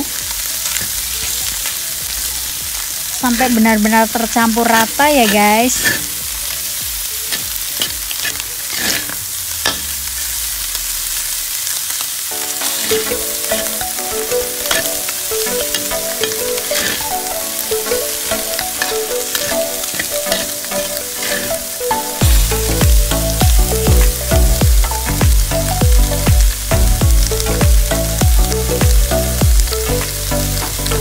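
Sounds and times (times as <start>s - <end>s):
background music: 0.0s - 10.2s, 12.3s - 31.0s
food sizzling in hot oil: 0.0s - 31.0s
stirring clicks and scrapes: 4.8s - 6.6s, 7.3s - 10.0s, 12.7s - 17.3s, 17.9s - 22.1s.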